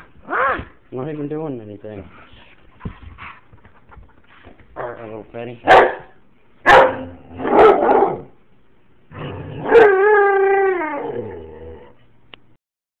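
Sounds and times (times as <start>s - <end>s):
dog howling: 0.2s - 0.7s, 9.4s - 12.0s
dog barking: 5.6s - 8.3s.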